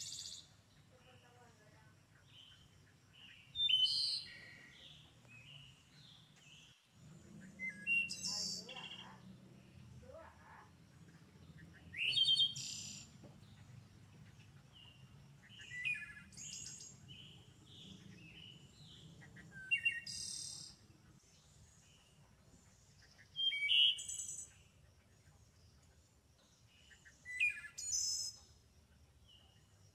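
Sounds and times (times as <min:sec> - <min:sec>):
birds chirping and whistling: 0:00.0 - 0:00.5, 0:02.3 - 0:09.9, 0:11.0 - 0:24.8, 0:26.7 - 0:28.6
faint low hum: 0:04.3 - 0:19.7.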